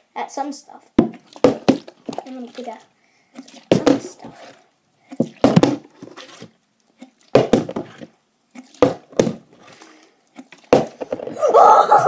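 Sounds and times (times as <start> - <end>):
plastic bottle landing with knocks: 1.0 - 2.2, 3.7 - 4.2, 5.2 - 6.2, 7.3 - 8.1, 8.8 - 9.5, 10.6 - 11.4.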